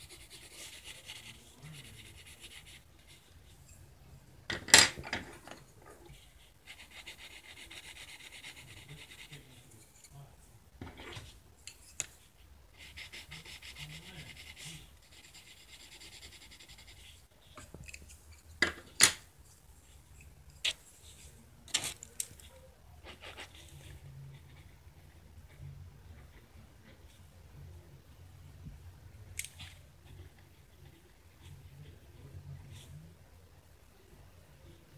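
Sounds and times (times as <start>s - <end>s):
pencil scratching on paper: 0.0s - 3.7s, 6.0s - 10.0s, 12.2s - 17.7s, 21.8s - 27.2s.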